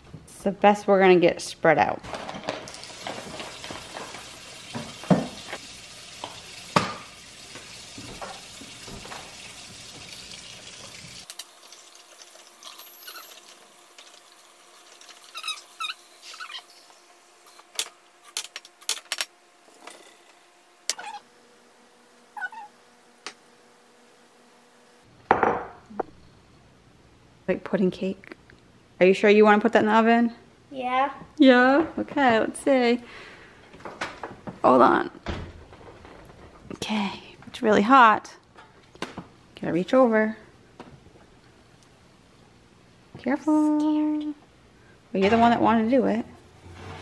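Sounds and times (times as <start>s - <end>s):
rustling and scraping in bowls: 2.1s - 5.6s, 10.8s - 21.2s, 45.2s - 47.0s
short squeaks: 12.6s - 13.5s, 15.1s - 16.9s, 20.9s - 21.3s, 22.4s - 22.8s.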